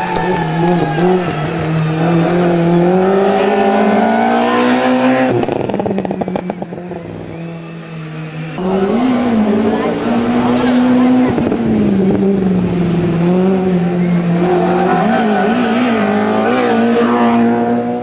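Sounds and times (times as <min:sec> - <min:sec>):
exhaust crackles: 0:00.0 - 0:07.0
race car engine revving: 0:00.0 - 0:18.0.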